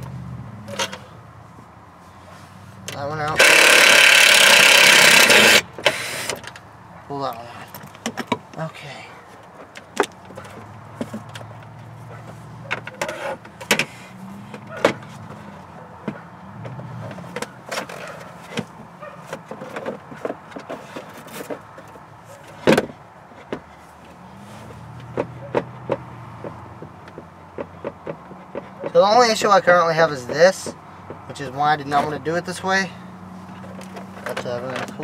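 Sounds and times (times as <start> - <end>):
amplifier handling knocks and clatter: 7.7 - 8.6, 9.4 - 23.8, 25.0 - 29.1, 33.5 - 35.0.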